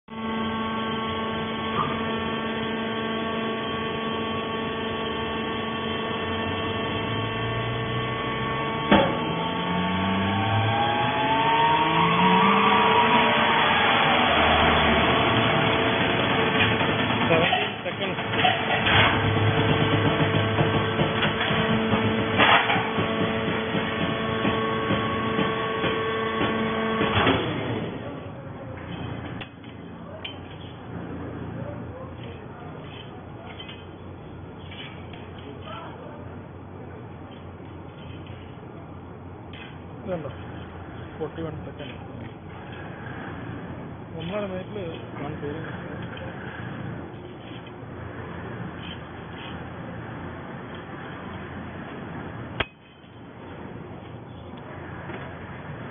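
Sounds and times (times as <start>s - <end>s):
rising whine: 0.1s - 29.9s
hydraulic motor and pump humming: 0.1s - 55.9s.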